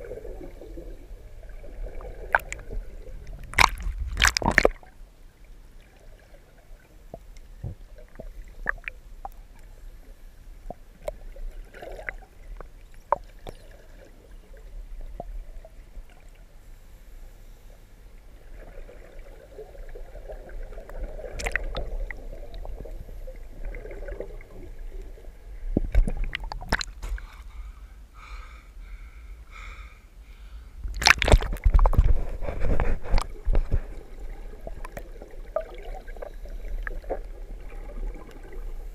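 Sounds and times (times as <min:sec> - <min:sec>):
bubbles gurgling: 0:00.0 - 0:05.0, 0:18.4 - 0:27.0, 0:31.0 - 0:38.9.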